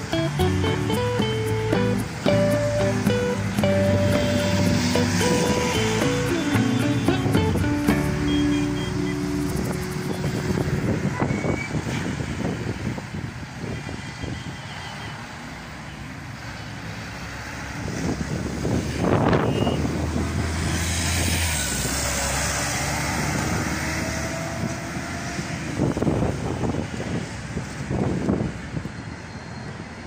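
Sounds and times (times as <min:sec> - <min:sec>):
vehicle passing close: 0:00.0 - 0:14.0, 0:16.2 - 0:28.6
road traffic: 0:00.0 - 0:30.0
wind buffeting microphone: 0:09.2 - 0:14.5, 0:17.8 - 0:29.2.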